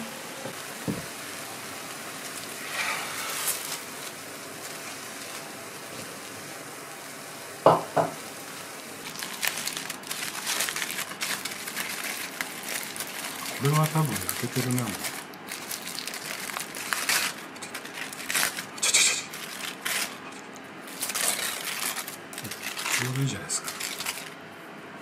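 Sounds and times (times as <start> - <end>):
faint sizzle: 0.0 - 24.4
aluminium foil crinkling: 2.2 - 6.1, 9.0 - 24.4.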